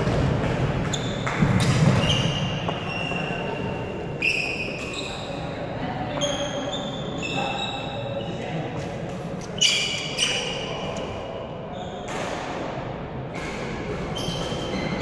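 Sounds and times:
racket hitting shuttlecock: 0.0s - 2.7s, 12.0s - 15.0s
shoe squeaks on wooden floor: 0.9s - 5.4s, 6.1s - 8.4s, 9.4s - 10.8s, 14.1s - 15.0s.

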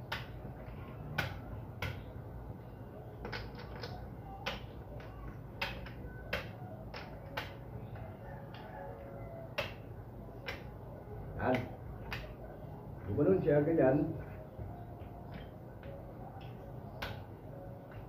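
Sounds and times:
game pieces clicking on plastic board: 3.2s - 7.6s.

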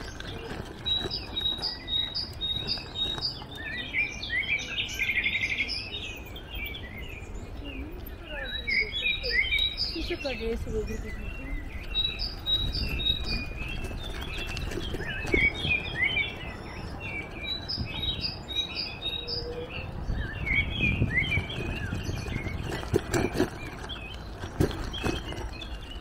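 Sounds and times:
songbirds chirping: 0.0s - 26.0s.

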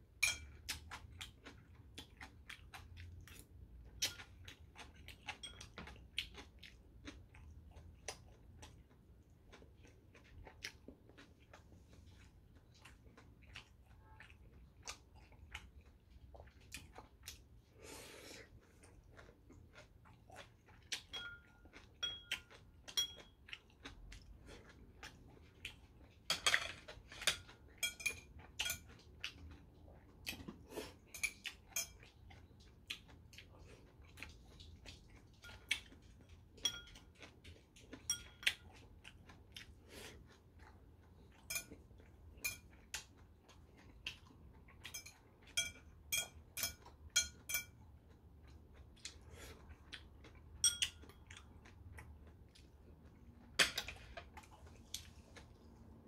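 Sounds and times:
chopsticks clinking on ceramic: 0.2s - 0.6s, 5.2s - 5.9s, 21.0s - 23.4s, 26.3s - 29.0s, 31.1s - 32.1s, 36.6s - 37.3s, 38.0s - 38.6s, 41.5s - 41.8s, 42.4s - 42.8s, 44.8s - 47.8s, 50.6s - 51.2s
chewing: 0.4s - 56.0s.

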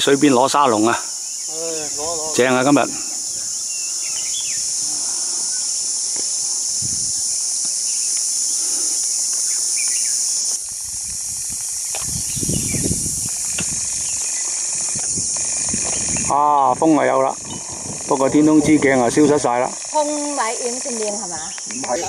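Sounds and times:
high-pitched insect drone: 0.0s - 22.0s
wind buffeting microphone: 1.7s - 7.6s, 10.6s - 19.7s, 20.5s - 22.0s
faint bird chirps: 3.3s - 6.6s.

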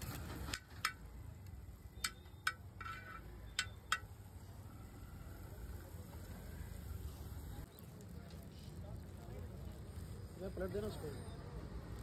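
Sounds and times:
metal utensil tapping griddle: 2.0s - 4.1s.

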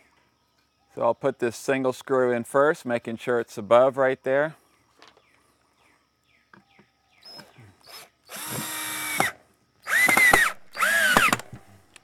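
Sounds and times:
power drill driving screw: 7.8s - 11.6s.

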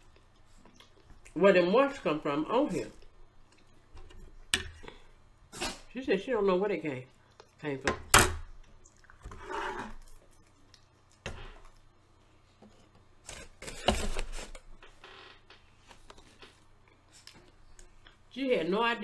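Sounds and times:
chewing and mouth noises: 0.0s - 1.4s, 8.6s - 9.4s, 10.0s - 11.2s.

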